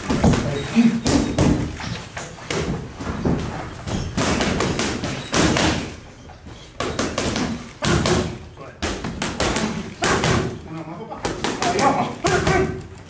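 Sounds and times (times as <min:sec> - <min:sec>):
gloves punching focus mitts: 0:02.5 - 0:06.0.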